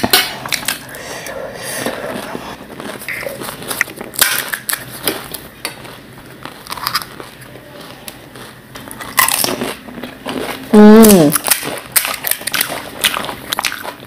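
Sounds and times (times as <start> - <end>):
crisp shells crunching: 2.7 - 14.0.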